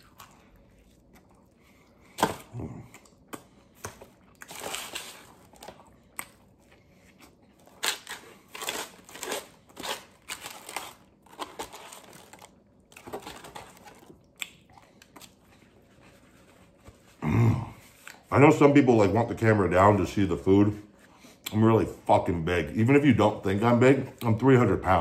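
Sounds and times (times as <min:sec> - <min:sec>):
biting and chewing: 0:00.0 - 0:15.8
paper wrapper crinkling: 0:04.4 - 0:05.8, 0:07.6 - 0:14.2.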